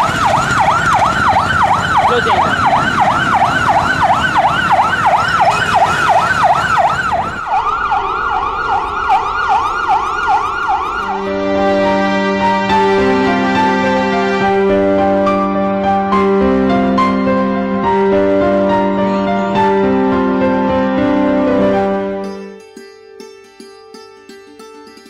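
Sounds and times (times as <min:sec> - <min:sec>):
ambulance siren yelping: 0:00.0 - 0:22.2
soft sad piano music: 0:11.0 - 0:22.6.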